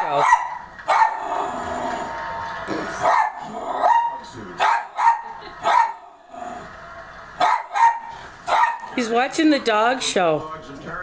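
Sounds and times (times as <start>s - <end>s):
small dog barking: 0.2s - 1.2s, 3.0s - 6.0s, 7.4s - 9.0s.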